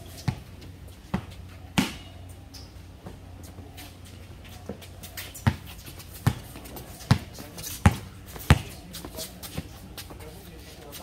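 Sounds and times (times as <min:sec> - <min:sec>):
basketball bouncing on hard court: 0:05.4 - 0:08.8.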